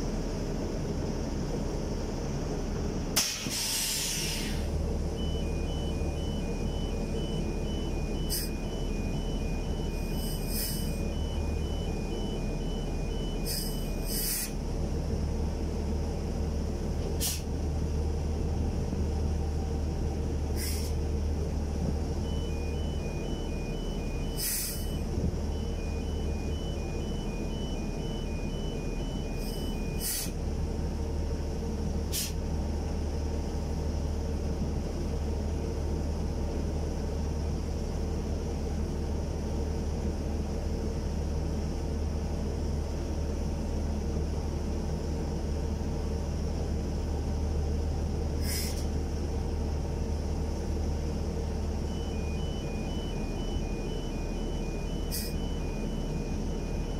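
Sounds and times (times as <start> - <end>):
diesel engine running: 0.0 - 56.9
two-tone warning beeper: 5.0 - 14.6, 21.6 - 30.4, 50.8 - 56.9.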